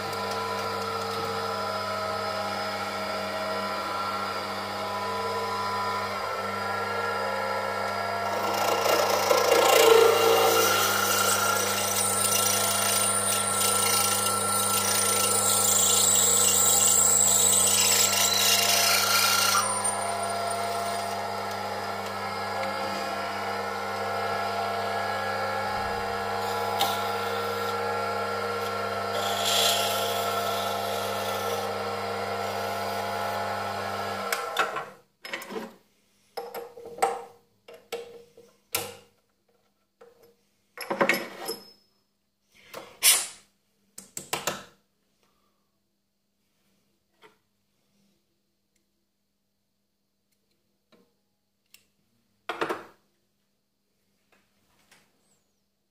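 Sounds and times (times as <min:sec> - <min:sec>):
lathe motor humming: 0:00.0 - 0:34.6
drill bit cutting metal with squeal: 0:08.3 - 0:21.1.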